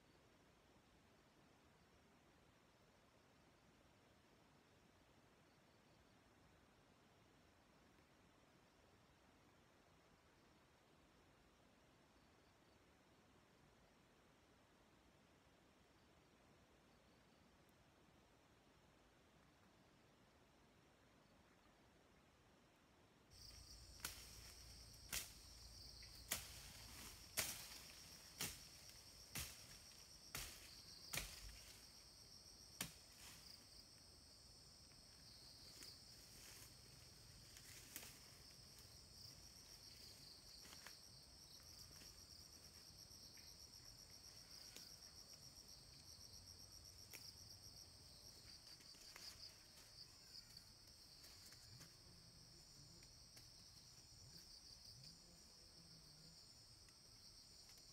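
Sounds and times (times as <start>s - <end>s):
insect chorus trilling: 23.3s - 57.9s.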